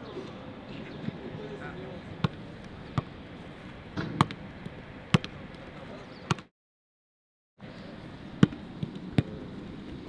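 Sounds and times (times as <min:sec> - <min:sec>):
football thudding: 0:04.0 - 0:04.4.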